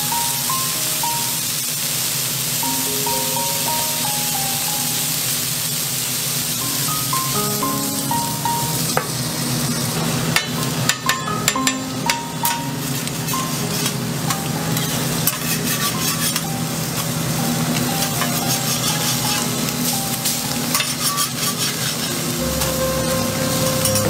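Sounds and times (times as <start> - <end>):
soft background music: 0.0 - 5.9, 6.5 - 9.7, 10.8 - 24.0
food sizzling on a griddle: 0.0 - 24.0
metal spatulas scraping steel: 14.8 - 16.4, 20.7 - 22.2.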